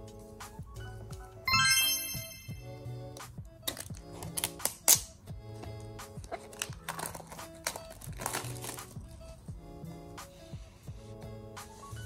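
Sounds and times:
background music: 0.0s - 12.0s
plastic wrap crinkling: 6.4s - 8.9s.

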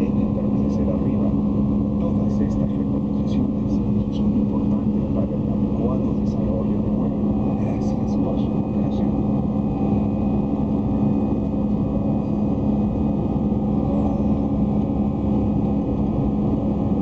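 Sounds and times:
airplane cabin engine drone: 0.0s - 17.0s
low steady hum: 0.0s - 17.0s.

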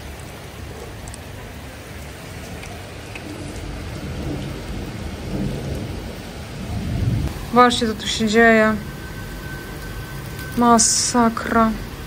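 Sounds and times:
steady rain: 0.0s - 12.0s
thunder rumbling: 0.0s - 12.0s.

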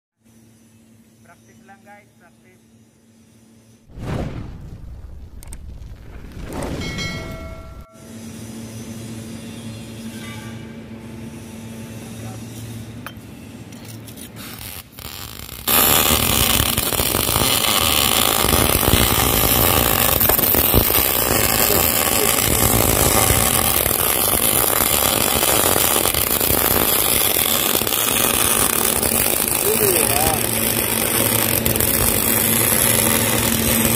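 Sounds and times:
low hum: 3.6s - 14.0s, 15.8s - 33.9s
arc welding crackling hiss: 14.4s - 33.9s.

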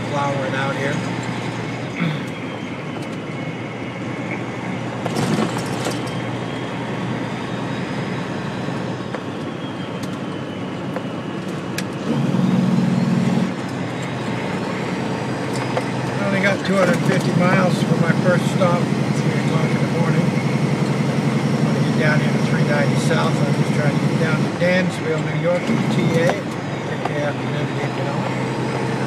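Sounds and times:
truck diesel engine and tyres: 0.0s - 29.0s
loud low hum: 12.0s - 24.6s.

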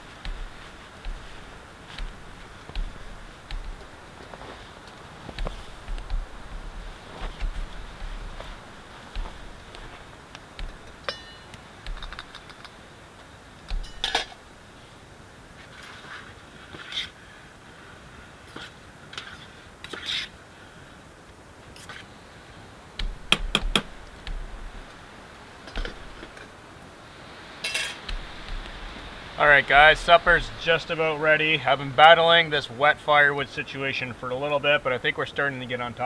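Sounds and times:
pot and utensils clinking: 11.0s - 12.6s, 27.6s - 28.0s.

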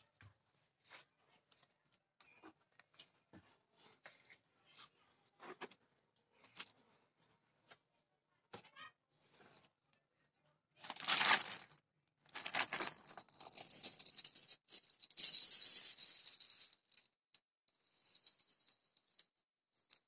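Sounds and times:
plastic rustling: 10.9s - 11.7s, 12.3s - 17.0s.

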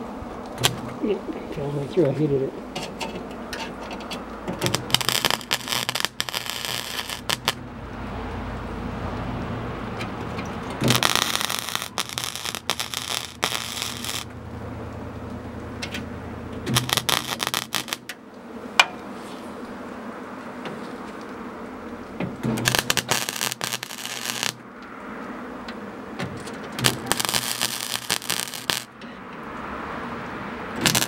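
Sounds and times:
welder arc crackling: 0.0s - 19.9s, 20.6s - 29.6s, 30.2s - 31.0s
steady low hum: 0.0s - 29.4s.

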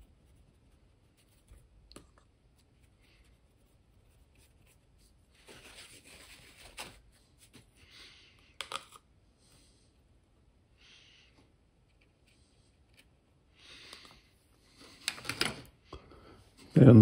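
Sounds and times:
paintbrush scratchy strokes: 0.0s - 1.8s, 2.4s - 6.5s.

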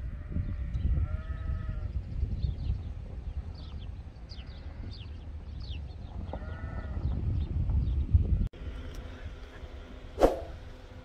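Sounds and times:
farm animal bleating: 0.0s - 2.0s, 4.3s - 5.1s, 6.2s - 7.1s
wind rumbling on microphone: 0.0s - 9.4s
small birds chirping: 0.1s - 8.4s.

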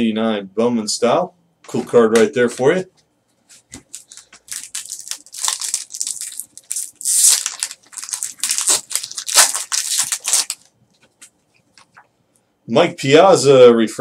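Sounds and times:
foil wrapper tearing and crumpling: 3.9s - 10.7s.

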